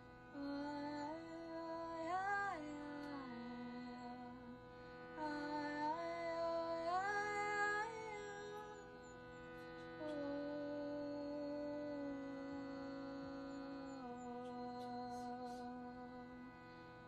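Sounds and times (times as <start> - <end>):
sustained drone tone: 5.2 - 16.5.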